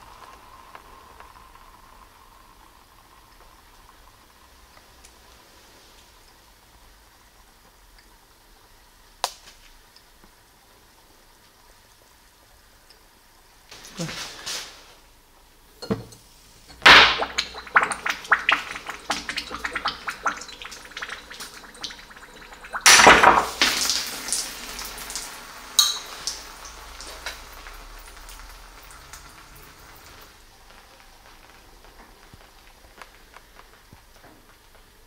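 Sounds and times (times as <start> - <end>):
hot metal sizzling in oil: 16.2 - 35.0
sharp pop: 16.7 - 17.6, 22.9 - 23.9.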